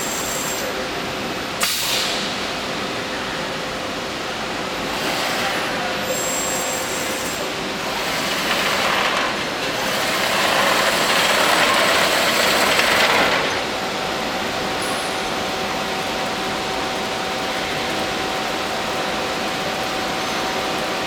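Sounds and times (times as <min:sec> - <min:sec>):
drilling machine hissing: 0:05.0 - 0:13.9.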